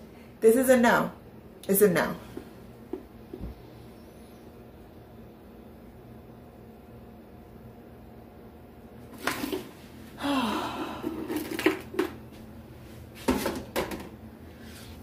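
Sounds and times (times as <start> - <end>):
container scraping: 9.1 - 9.8, 11.0 - 12.0
plastic containers clattering: 9.1 - 9.8, 11.0 - 12.2, 13.2 - 14.2.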